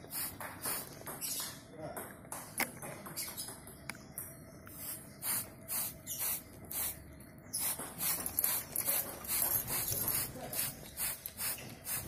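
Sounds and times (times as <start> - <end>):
spray bottle squirting: 0.1 - 1.0, 4.8 - 7.0, 7.6 - 12.0.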